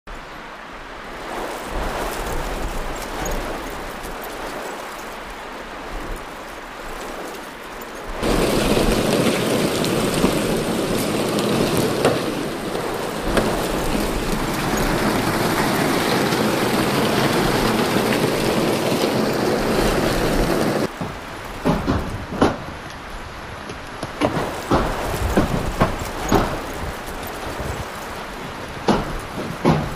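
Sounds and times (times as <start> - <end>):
rain falling: 0.1 - 29.9
hail clattering: 1.2 - 22.7, 24.2 - 29.9.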